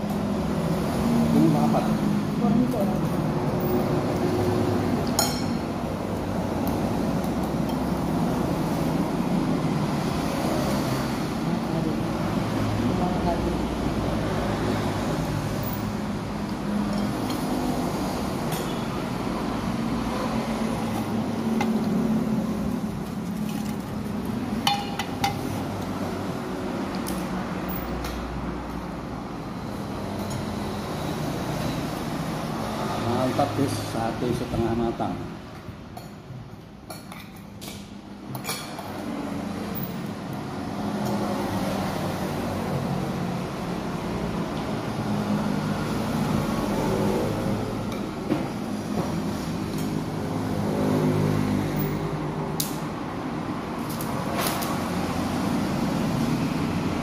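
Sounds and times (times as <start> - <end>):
cutlery clinking on plate: 5.1 - 5.6.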